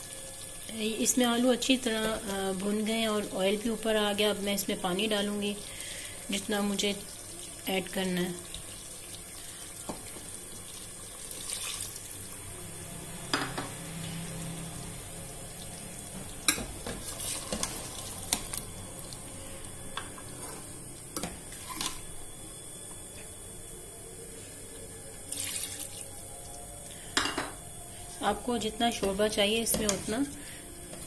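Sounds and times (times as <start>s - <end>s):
water pouring into pot: 7.0s - 12.4s, 17.0s - 19.2s, 25.3s - 26.6s.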